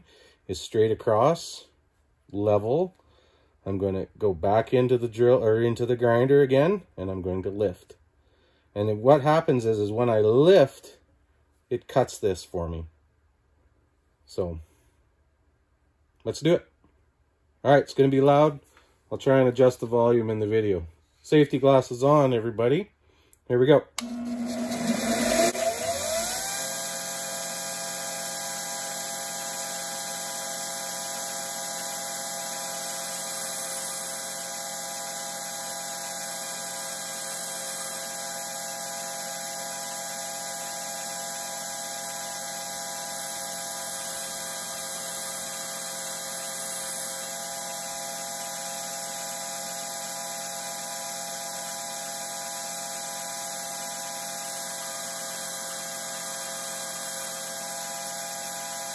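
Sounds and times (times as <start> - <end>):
bench grinder whining: 24.0 - 58.9.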